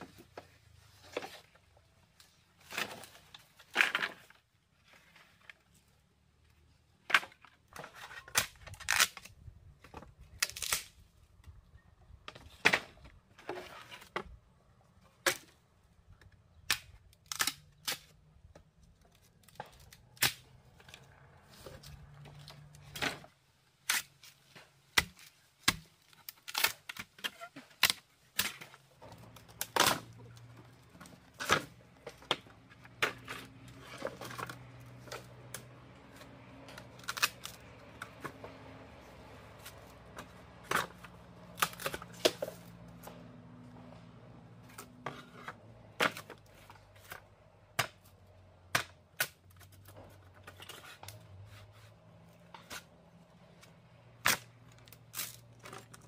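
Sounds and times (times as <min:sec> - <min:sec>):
sharp cracks and knocks: 0:16.2 - 0:21.1, 0:21.7 - 0:38.8, 0:39.5 - 0:43.3, 0:45.5 - 0:51.2, 0:52.4 - 0:56.0.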